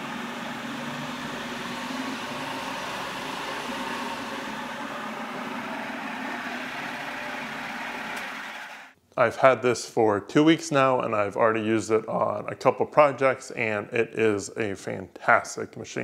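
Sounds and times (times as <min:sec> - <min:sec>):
drill press motor humming: 0:00.0 - 0:09.0.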